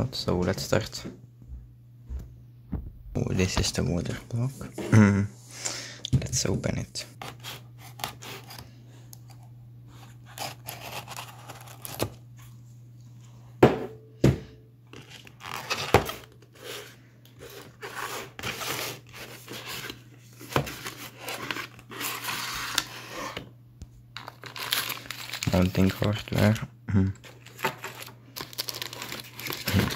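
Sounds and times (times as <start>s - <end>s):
cardboard scraping and rustling: 10.0s - 12.2s, 15.0s - 23.4s.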